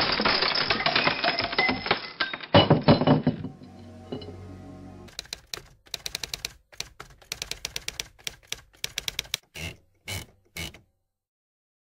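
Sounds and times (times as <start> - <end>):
typewriter key clacks: 5.1 - 9.4
heavy typewriter strokes: 5.1 - 10.8.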